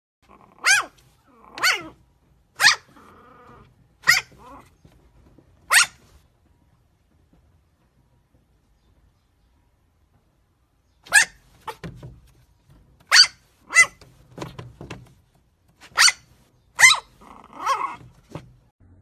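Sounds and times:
puppy yapping: 0.2 - 2.0, 2.6 - 4.9, 5.6 - 6.1, 11.0 - 12.0, 13.1 - 14.1, 15.9 - 18.4.

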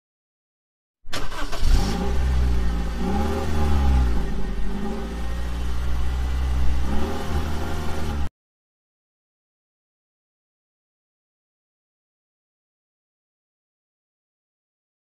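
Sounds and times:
motorcycle engine idling and revving: 1.8 - 8.3.

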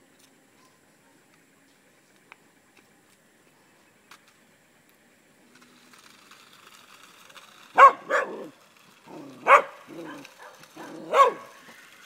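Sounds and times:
dog barking: 7.8 - 8.4, 9.4 - 11.5.

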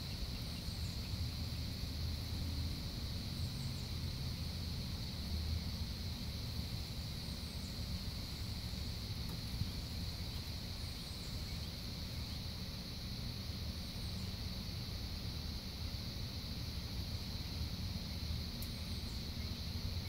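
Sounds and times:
faint bird chirps: 9.5 - 12.6.

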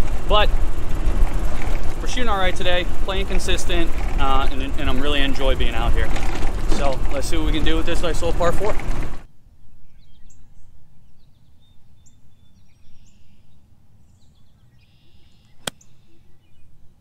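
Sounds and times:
wind rumble on microphone: 0.0 - 13.0
faint bird chirps: 9.6 - 17.0
golf club striking ball: 15.6 - 15.9.

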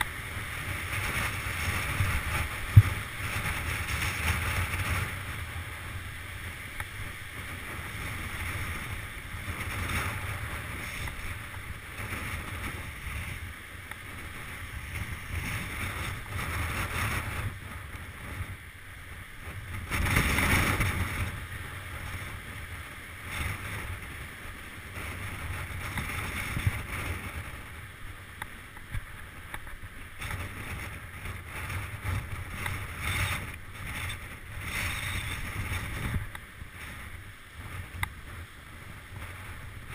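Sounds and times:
bike tyres crunching on gravel: 0.0 - 17.4
wind noise on microphone: 0.0 - 39.9
bike frame rattling: 32.1 - 36.1.

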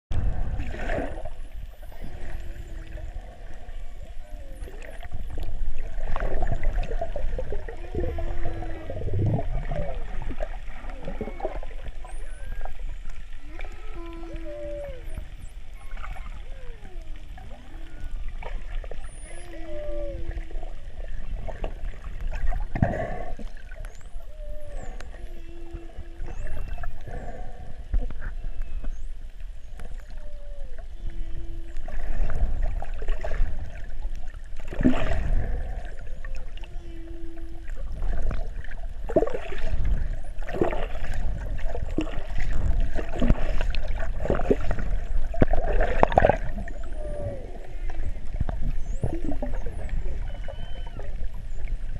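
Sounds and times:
whale low moan: 0.2 - 51.9
whale gliding calls: 0.8 - 51.9
dolphin whistles: 11.2 - 16.9, 19.0 - 20.3, 48.8 - 51.2
rushing water noise: 31.6 - 51.2.

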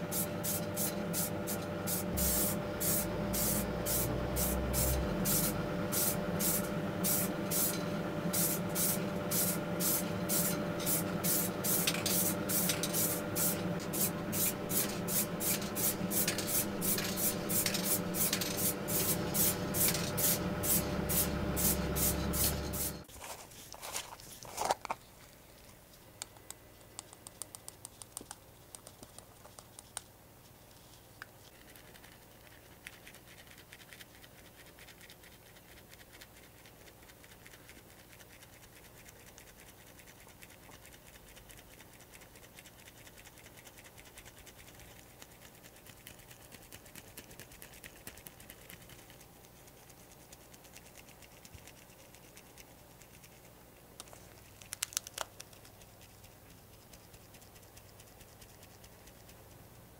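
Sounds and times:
wire-mesh strainer scratching: 0.2 - 24.6.

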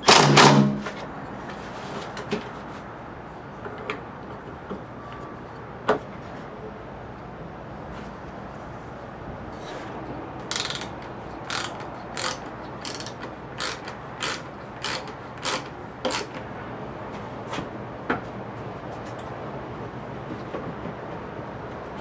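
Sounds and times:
ratchet wrench clicking: 10.5 - 16.3.

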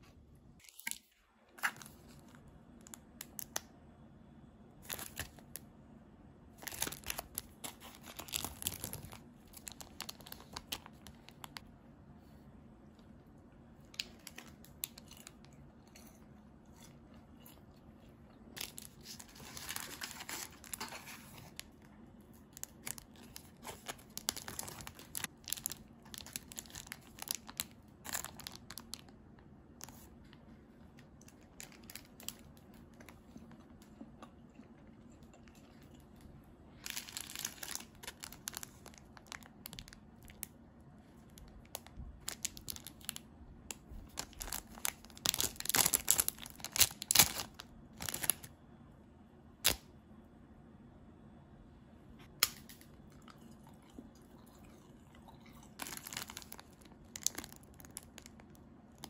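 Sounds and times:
plastic wrappers crinkling: 4.8 - 5.6, 6.6 - 11.6, 13.8 - 16.1, 18.6 - 29.2, 31.0 - 33.5, 36.8 - 40.5, 41.2 - 48.5, 55.5 - 59.0.

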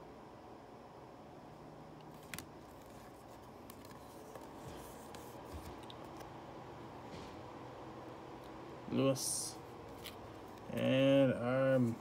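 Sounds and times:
cards sliding against each other: 2.1 - 6.3, 9.9 - 10.9.

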